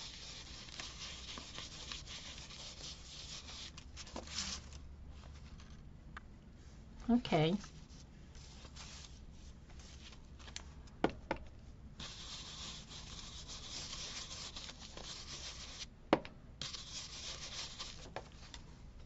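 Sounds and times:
dry scrubbing on cardboard: 0:00.0 - 0:04.6, 0:12.0 - 0:15.8, 0:16.6 - 0:18.1.

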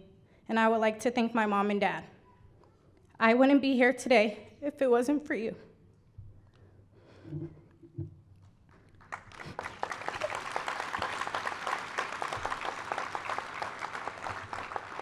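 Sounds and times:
audience applauding: 0:08.9 - 0:15.0.

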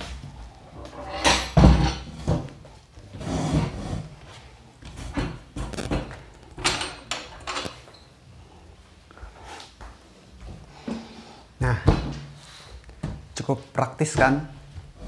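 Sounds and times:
folding table knocks and scrapes: 0:01.0 - 0:02.6.

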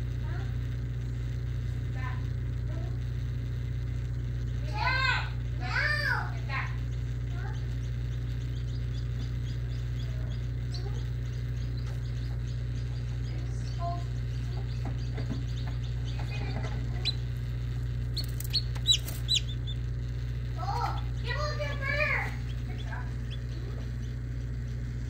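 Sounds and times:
steady low hum: 0:00.0 - 0:25.0
chick peeping: 0:06.9 - 0:25.0.

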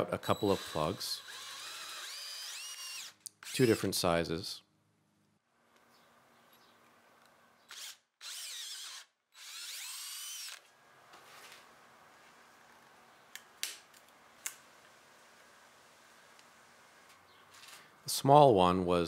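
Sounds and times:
cordless drill motor whine: 0:00.2 - 0:03.7, 0:07.7 - 0:10.7.

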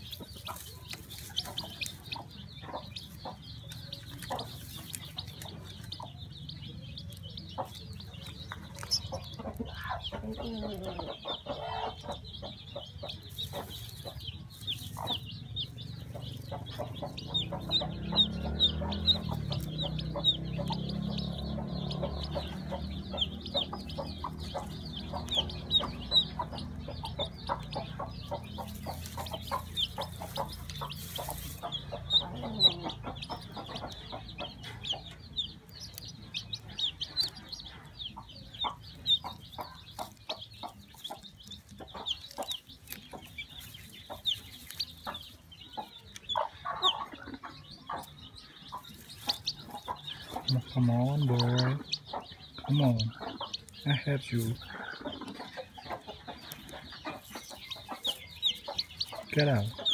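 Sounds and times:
chick peeping: 0:00.0 - 0:59.9.

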